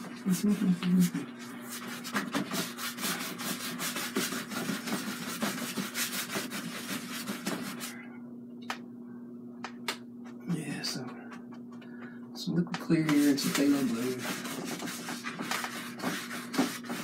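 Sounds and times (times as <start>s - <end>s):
paintbrush scrubbing canvas: 0.0s - 8.0s, 13.0s - 17.0s.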